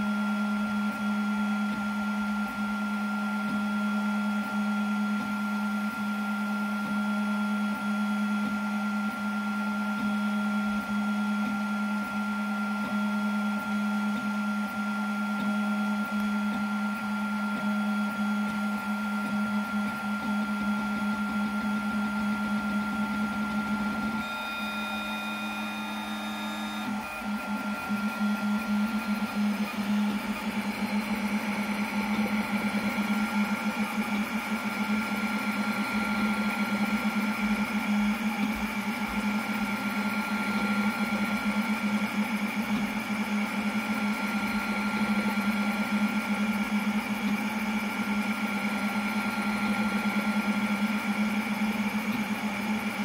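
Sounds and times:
cooling fan hum: 11.4 - 53.0.

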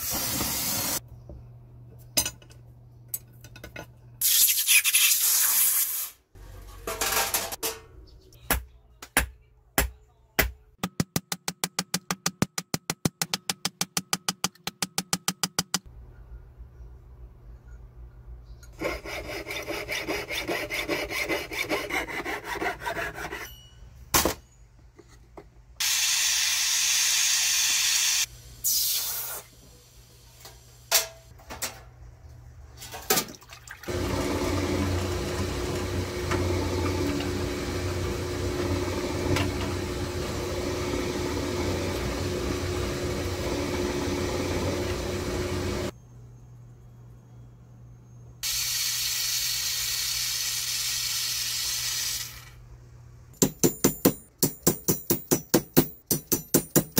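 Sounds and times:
saw cutting through metal: 18.8 - 23.5.

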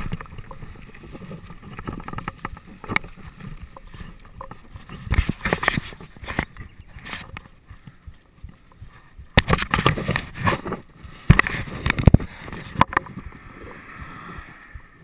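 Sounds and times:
camera knocking and rattling: 0.0 - 13.4
wind hissing over microphone: 8.5 - 15.0.

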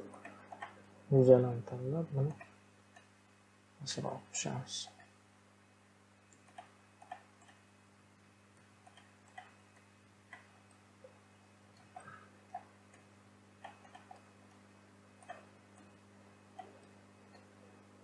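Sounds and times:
computer mouse and keyboard clicks: 0.0 - 0.8, 6.3 - 7.6, 8.6 - 10.8, 11.7 - 14.6, 15.2 - 17.5
faint electrical hum: 0.0 - 18.0.

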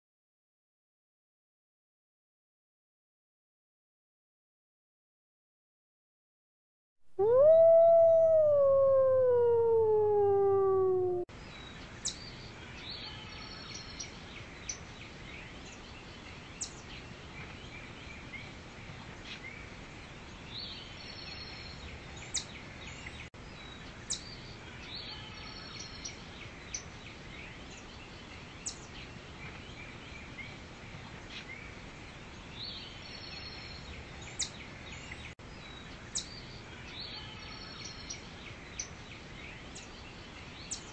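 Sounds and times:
forest ambience: 7.1 - 11.3
wolf howling: 7.2 - 11.3.

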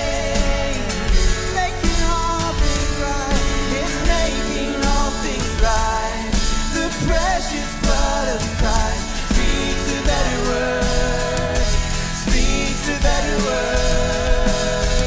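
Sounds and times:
worship band playing pop-rock song: 0.0 - 15.0.

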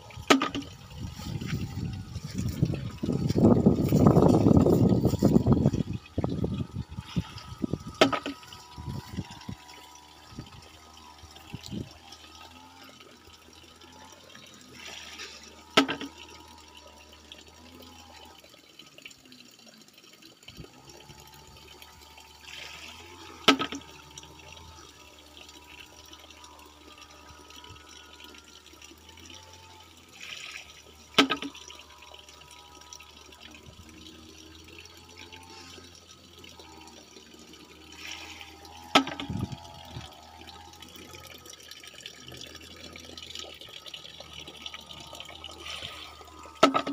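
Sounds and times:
water trickling: 0.0 - 46.9
water splashing: 22.4 - 46.9.

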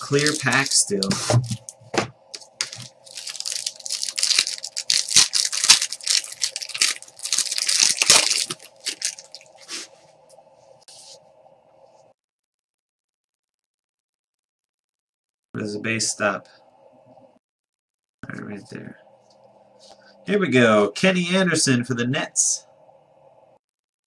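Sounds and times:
plastic wrapper crinkling: 0.0 - 9.7.

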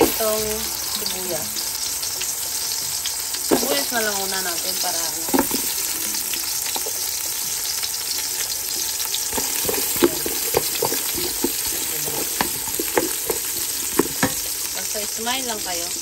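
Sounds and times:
onion sizzling in hot oil: 0.0 - 16.0
wooden spatula scraping a pot: 8.2 - 14.7.

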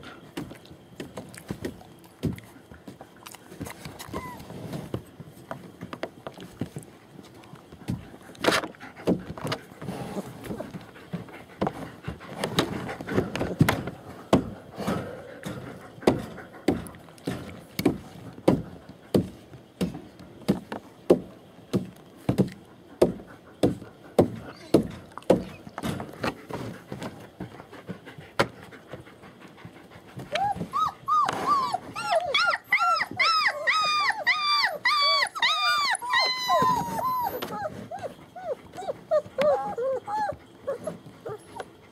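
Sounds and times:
high-pitched dog whimpering: 4.0 - 4.6, 30.3 - 41.7
dog panting: 7.7 - 17.6, 25.4 - 34.3, 35.0 - 41.9.

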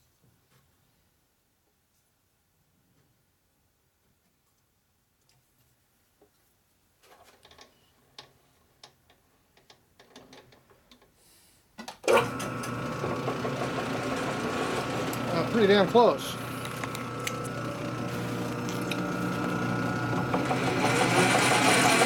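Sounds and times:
lathe running: 12.1 - 22.0.

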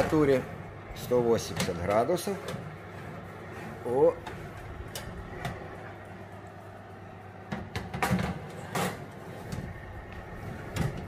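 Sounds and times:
metal baking tray sliding in oven: 0.0 - 6.4, 7.7 - 11.0
steady low hum: 0.0 - 11.0
tray scrapes and clunks: 7.5 - 11.0.

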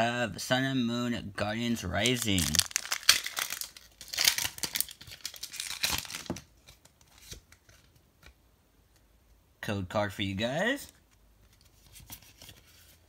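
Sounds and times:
foil wrapper tearing and crinkling: 2.0 - 6.4.

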